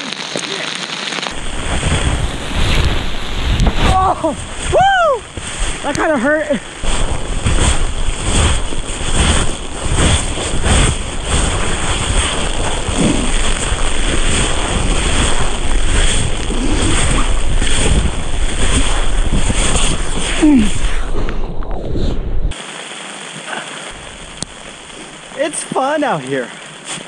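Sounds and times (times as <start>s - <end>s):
knocks and crunches on hail: 0.0s - 20.6s
wind buffeting microphone: 1.3s - 22.6s.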